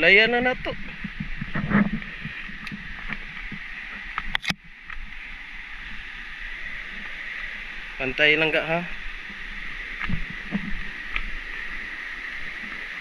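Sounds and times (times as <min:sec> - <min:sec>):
steady high hiss: 0:00.0 - 0:13.0
sharp click: 0:04.2 - 0:04.6.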